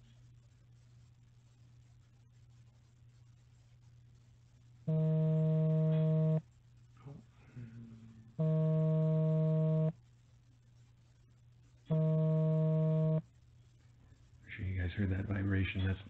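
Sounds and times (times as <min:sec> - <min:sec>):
mobile phone vibrating: 0:04.9 - 0:06.5, 0:08.4 - 0:10.0, 0:11.9 - 0:13.3.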